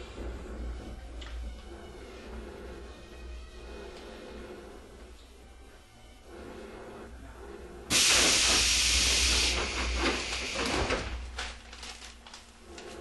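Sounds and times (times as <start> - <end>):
compressed air hissing from train: 7.8 - 11.3.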